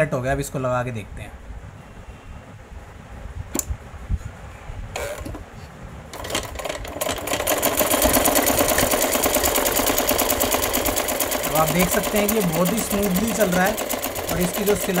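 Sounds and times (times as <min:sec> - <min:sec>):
sewing machine stitching: 0:06.1 - 0:15.0.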